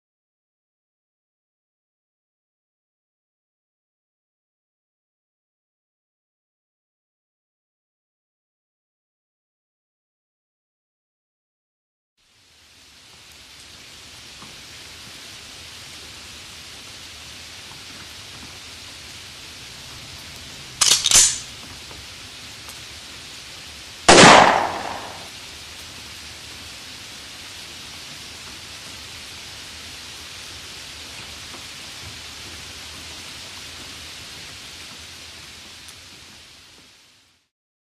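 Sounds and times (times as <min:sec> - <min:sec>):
steady rain hiss: 0:12.2 - 0:37.5
sharp cracks: 0:20.8 - 0:21.5, 0:24.1 - 0:25.3
gunshot with falling rumble: 0:24.1 - 0:25.3.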